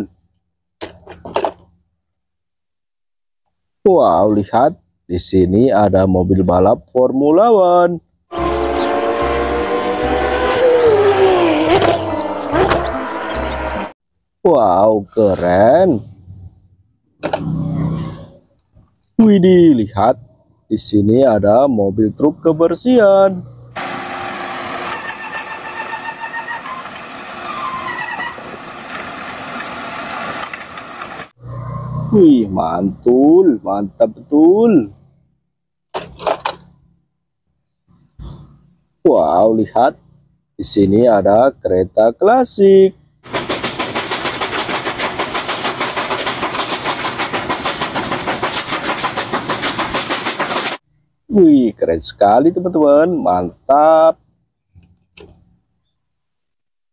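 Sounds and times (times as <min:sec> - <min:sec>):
steam locomotive chuffing: 0:08.3 - 0:13.9, 0:23.8 - 0:31.3, 0:43.2 - 0:50.8
garbage truck engine and machinery: 0:08.3 - 0:14.0, 0:15.1 - 0:19.1, 0:23.4 - 0:32.1, 0:34.9 - 0:39.0, 0:42.9 - 0:51.2
high hydraulic whining: 0:08.3 - 0:14.0, 0:23.8 - 0:31.4, 0:43.2 - 0:50.8.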